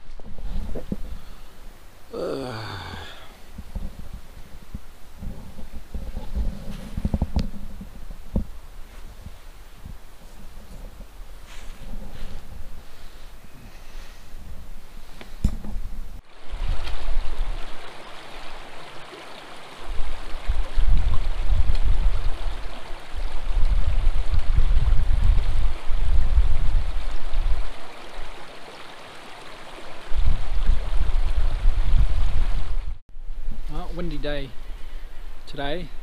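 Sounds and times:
stream running over stones: 0.0 - 33.0
wind buffeting microphone: 2.9 - 18.6, 19.7 - 28.2, 29.9 - 33.7.

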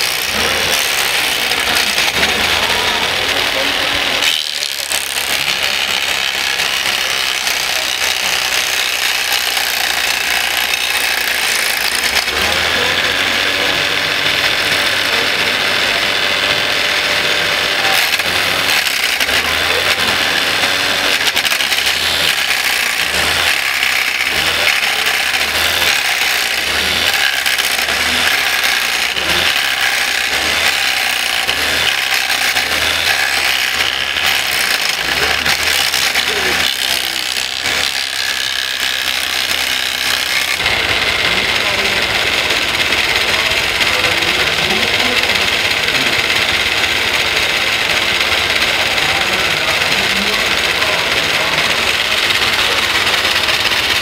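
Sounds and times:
model wood chipper whirring and rattling: 0.0 - 54.0.

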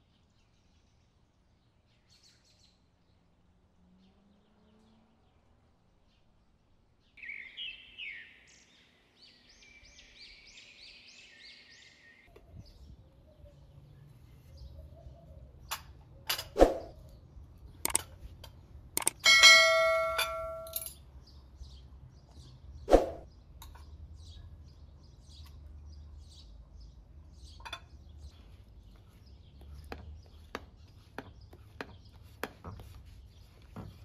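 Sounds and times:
songbird chirping: 0.0 - 34.0
kitchen utensils clinking: 19.2 - 21.0.

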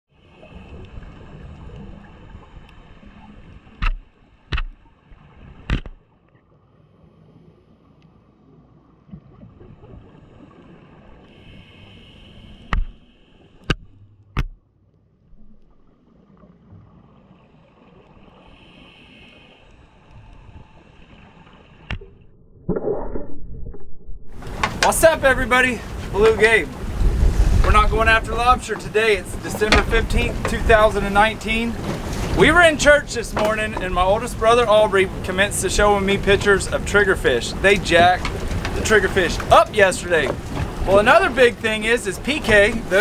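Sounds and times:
muffled underwater wash: 0.1 - 43.0
sharp clicks or knocks: 3.8 - 4.8, 5.7 - 6.0.

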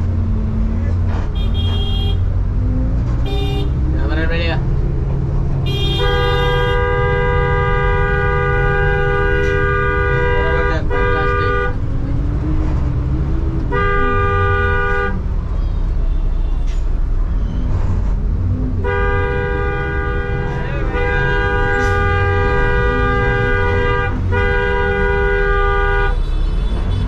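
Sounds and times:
low rumble of moving bus: 0.0 - 27.0
road traffic: 0.0 - 27.0
vehicle horn blaring: 1.4 - 2.2, 3.2 - 3.8, 5.6 - 11.8, 13.7 - 15.2, 18.8 - 27.0.

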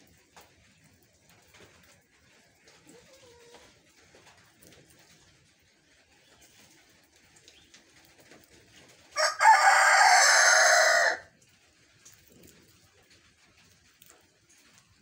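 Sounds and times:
rooster crowing: 9.2 - 11.3.

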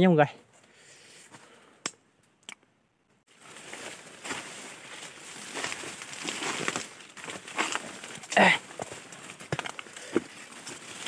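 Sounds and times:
brushing through undergrowth: 3.3 - 11.0
footsteps crunching dry leaves: 3.3 - 11.0.

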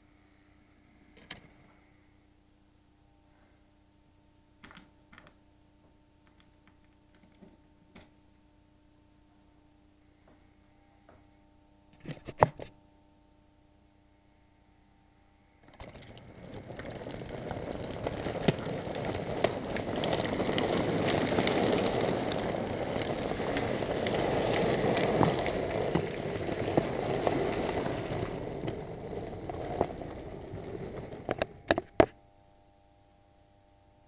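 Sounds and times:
model train wheels rumbling: 15.5 - 32.2
clicks from rail joints: 15.6 - 32.2.

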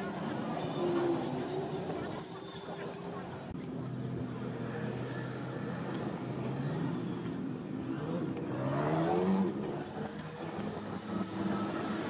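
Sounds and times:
background noise: 0.0 - 12.0
vehicle engine revving: 7.8 - 12.0.

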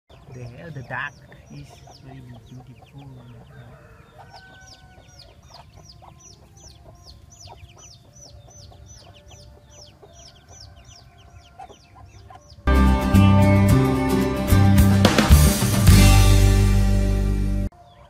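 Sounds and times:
ducklings peeping: 0.1 - 12.7, 17.7 - 18.0.

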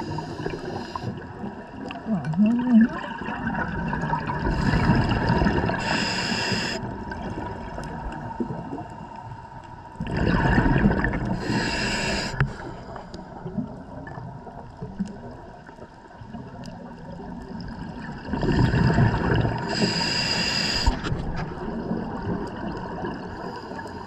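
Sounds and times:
diver breathing through regulator: 0.0 - 1.3, 4.4 - 6.9, 11.3 - 13.3, 19.6 - 21.2
steady low gurgle: 0.0 - 24.0.

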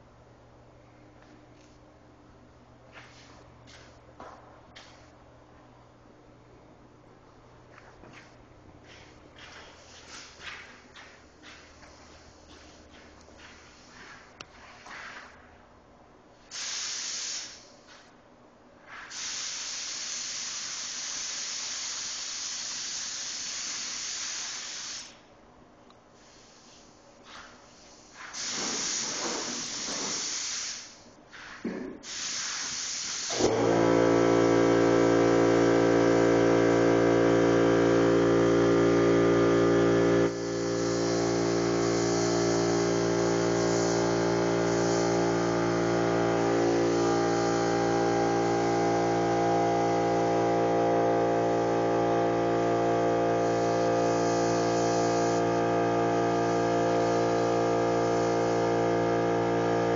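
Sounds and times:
paint spray gun hissing: 16.5 - 17.8, 18.9 - 25.2, 26.2 - 31.0, 32.0 - 33.8, 40.2 - 59.9.

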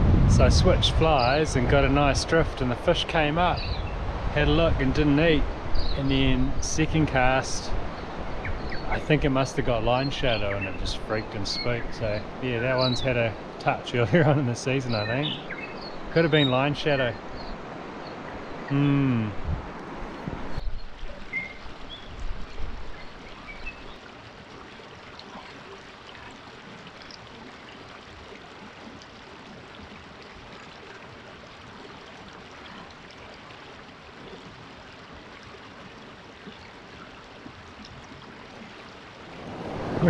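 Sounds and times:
low bumps: 0.0 - 13.3
birds chirping: 0.4 - 24.1
river flowing over stones: 19.8 - 40.0.

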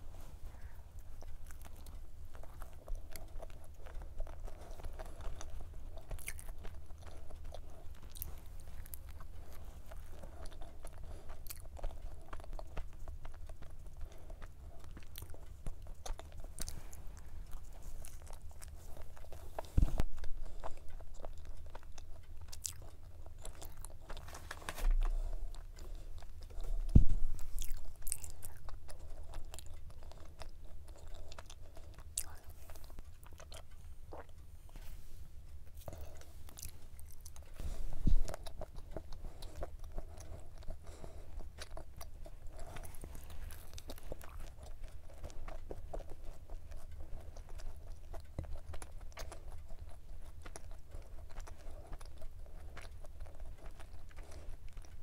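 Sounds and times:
chewing and crunching pastry: 0.0 - 55.0
low thumps: 26.7 - 27.8.

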